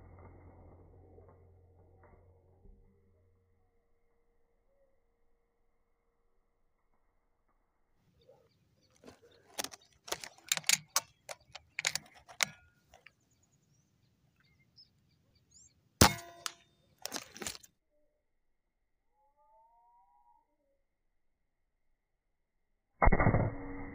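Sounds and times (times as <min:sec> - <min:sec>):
rifle handling clicks and knocks: 0:08.9 - 0:13.2, 0:16.0 - 0:17.7
air rifle shot: 0:16.0 - 0:16.5.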